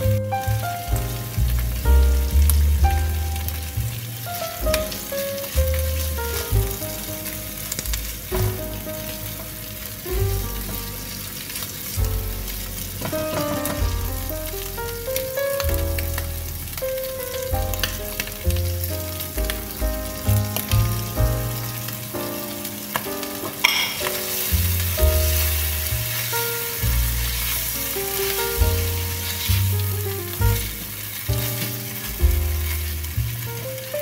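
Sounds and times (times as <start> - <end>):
background music: 0.0 - 34.0
food sizzling in frying pan: 0.0 - 34.0.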